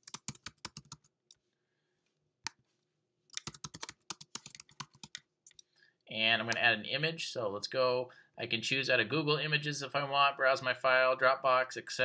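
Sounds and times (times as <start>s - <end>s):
computer keyboard typing: 0.0s - 1.1s, 3.3s - 5.6s.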